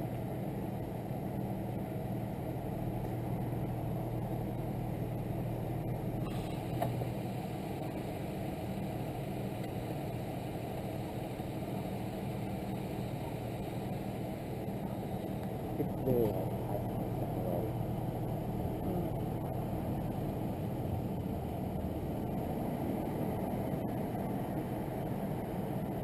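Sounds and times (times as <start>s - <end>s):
engine idling: 0.0s - 26.0s.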